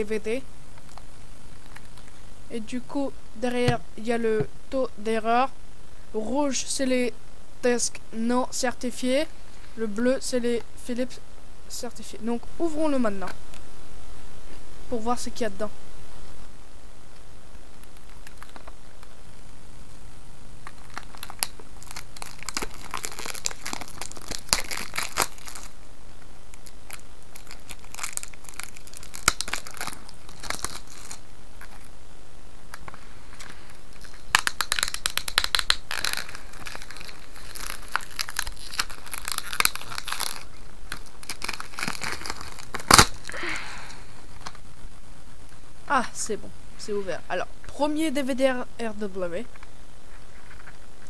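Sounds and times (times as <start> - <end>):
plastic wrap crinkling and tearing: 0.7 - 2.2, 17.7 - 19.2, 20.6 - 25.8, 26.5 - 31.9, 32.7 - 43.5.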